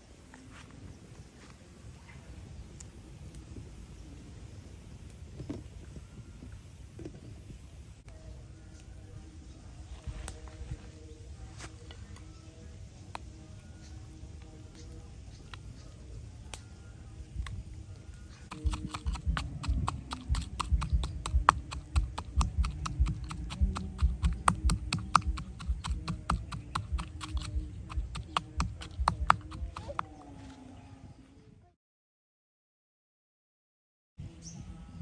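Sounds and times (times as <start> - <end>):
rapid sharp knocking: 18.5 - 29.9.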